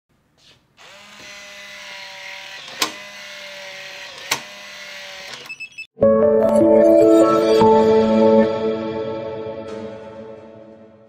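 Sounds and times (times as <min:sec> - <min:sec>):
door lock motor whining: 0:00.8 - 0:05.9.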